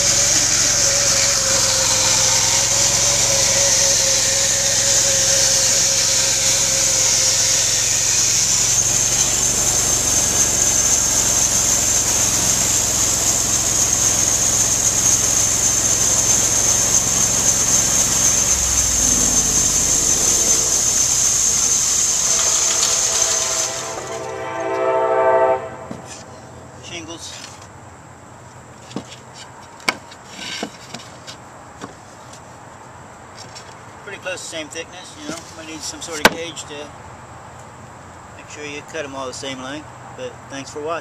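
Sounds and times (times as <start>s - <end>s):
bandsaw sawing wood: 0.0s - 26.3s
high saw whine: 0.0s - 26.6s.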